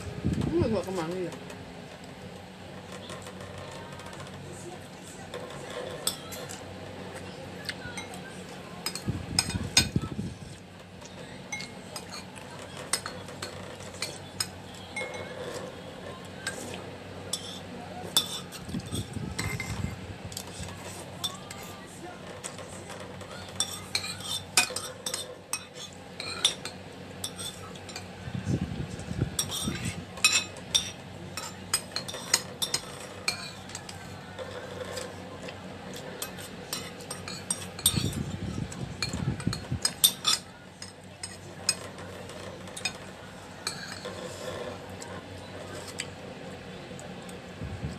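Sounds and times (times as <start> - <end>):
metal spoon scraping a bowl: 5.3 - 6.6, 11.0 - 28.1, 29.4 - 46.2.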